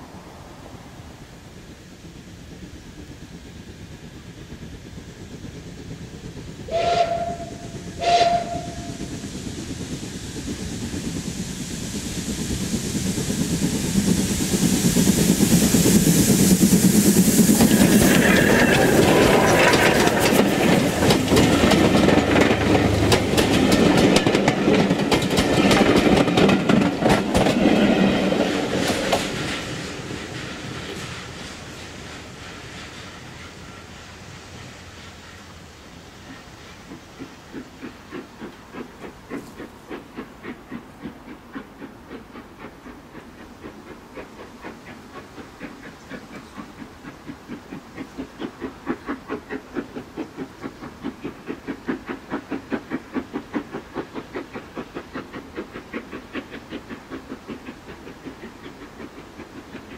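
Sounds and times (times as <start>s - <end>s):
steam whistle toots: 6.7s - 9.0s
wheels clicking over rail joints: 16.6s - 33.6s.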